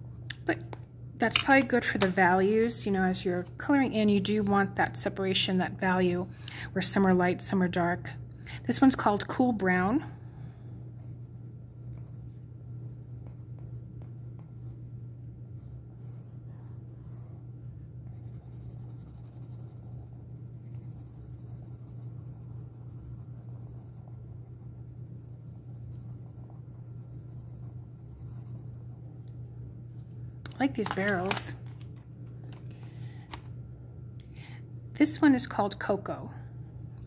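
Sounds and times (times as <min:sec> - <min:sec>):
pencil scratching on paper: 0:11.0 - 0:14.8, 0:15.6 - 0:29.0.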